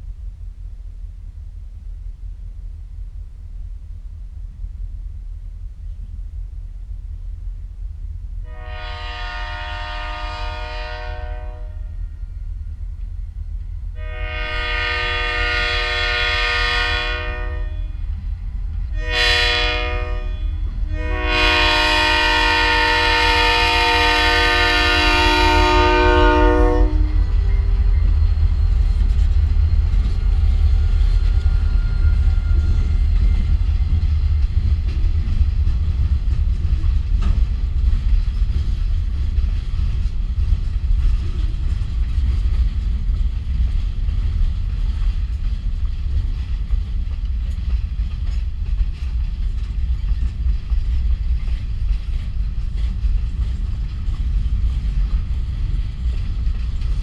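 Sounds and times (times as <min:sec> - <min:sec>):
train rumbling over rails: 0:00.0 - 0:57.0
locomotive air horn blast: 0:08.4 - 0:12.1, 0:14.0 - 0:18.0, 0:19.0 - 0:27.3.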